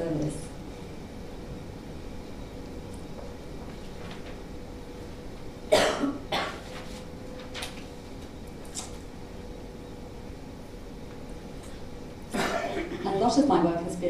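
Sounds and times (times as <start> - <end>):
person coughing: 5.7 - 6.6, 12.3 - 13.1.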